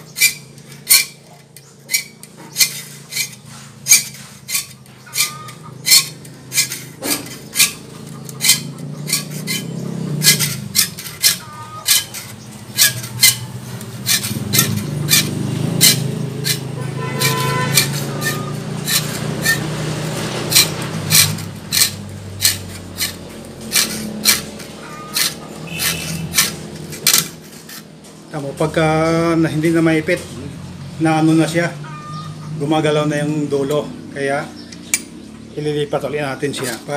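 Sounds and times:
file rasping on saw teeth: 0:00.0 - 0:27.9.

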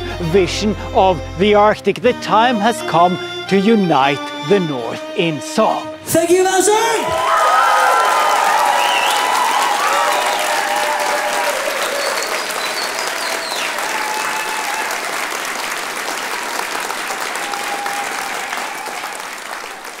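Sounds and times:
audience applauding and cheering: 0:06.8 - 0:20.0
whistle: 0:08.7 - 0:09.4, 0:11.8 - 0:14.6.

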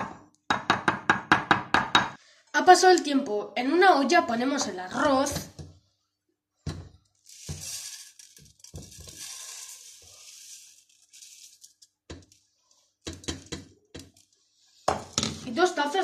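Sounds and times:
rice pouring into metal pot: 0:07.2 - 0:12.8.

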